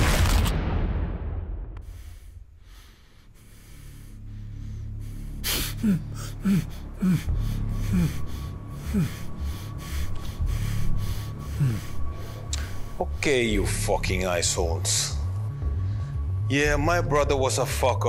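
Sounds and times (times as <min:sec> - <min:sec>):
person gasping: 0:01.8 - 0:13.0.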